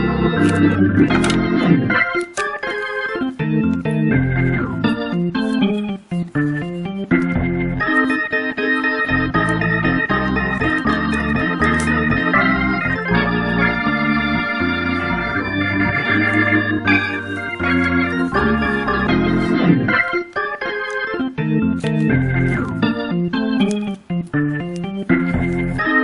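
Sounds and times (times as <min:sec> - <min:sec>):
organ-like keyboard music: 0:00.0 - 0:26.0.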